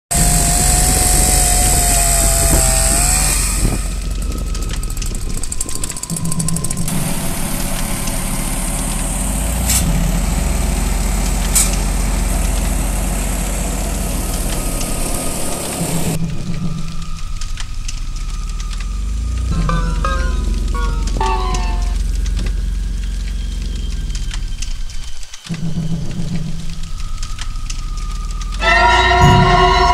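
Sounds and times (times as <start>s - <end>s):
chainsaw cutting log: 0.1s - 4.0s
wood chipper engine running: 0.1s - 16.4s, 18.2s - 24.4s
sharp clicks: 3.8s - 6.9s.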